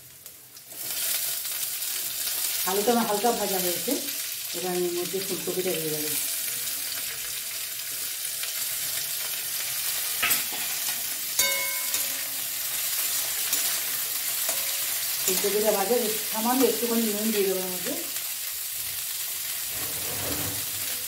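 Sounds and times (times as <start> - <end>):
vegetables sizzling in hot oil: 0.0 - 21.0
metal spatula stirring: 10.2 - 12.4.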